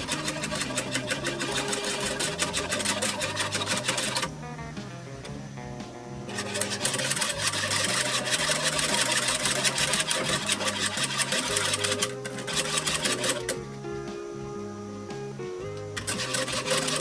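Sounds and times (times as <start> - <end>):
whisk scraping metal saucepan: 0.0 - 4.3, 6.3 - 13.6, 16.0 - 17.0
background music with bass line: 0.0 - 17.0.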